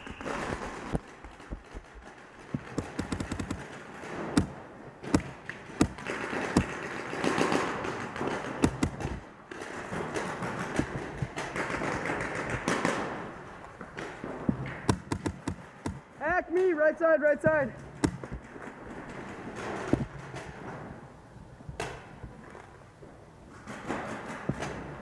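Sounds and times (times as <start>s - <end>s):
paintball markers firing: 0.0s - 16.8s, 17.8s - 20.8s.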